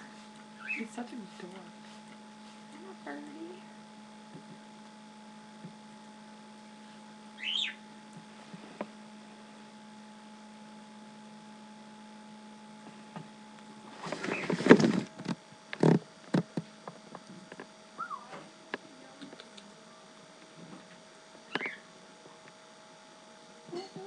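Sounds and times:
cockatiel chirp: 0.6 - 0.8, 7.4 - 7.8, 18.0 - 18.3
bird flapping and shaking feathers: 14.0 - 16.0.

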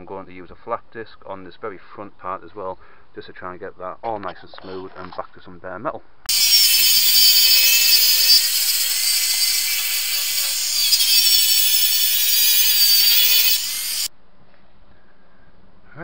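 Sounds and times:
angle grinder grinding metal: 6.3 - 14.1.

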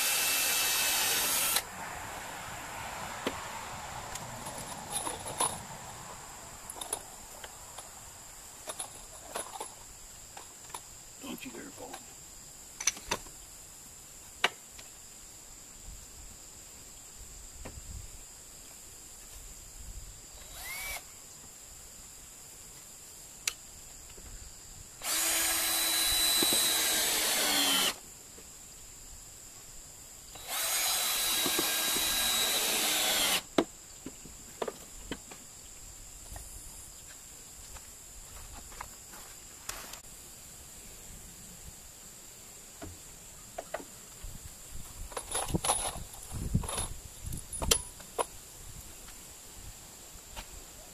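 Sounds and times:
cordless drill whining: 0.0 - 1.6, 20.4 - 21.0, 25.0 - 28.0, 30.4 - 33.5.

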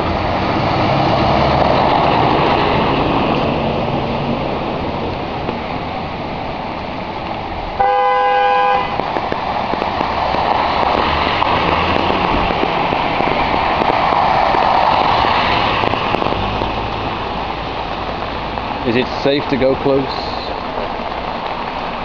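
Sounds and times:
water rushing: 0.0 - 22.0
vehicle horn honking: 7.8 - 9.0.

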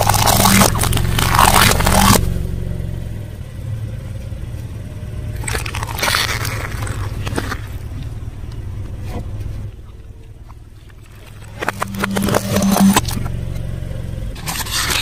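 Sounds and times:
car tyre crushing plastic toys: 0.0 - 2.2, 5.3 - 13.4, 14.4 - 15.0
crackling crunch: 0.0 - 2.2, 5.4 - 13.4
low engine hum: 0.0 - 15.0.

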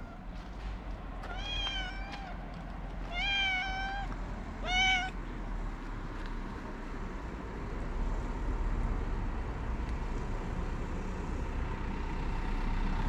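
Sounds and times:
cat meowing: 1.2 - 2.4, 3.1 - 5.2.

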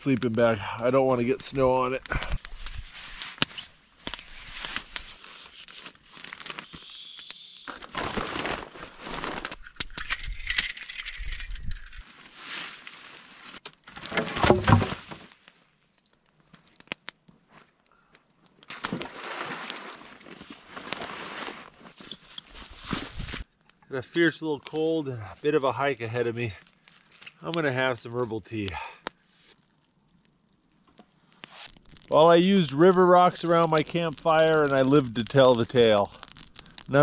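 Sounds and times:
sleeping bag rustling: 7.8 - 9.6, 18.9 - 23.5.

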